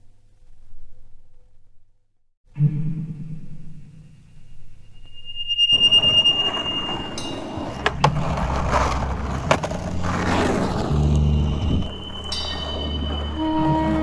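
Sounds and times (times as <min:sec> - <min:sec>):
skateboard wheels rolling on asphalt: 0:05.9 - 0:14.0
skateboard clacks: 0:07.3 - 0:11.7.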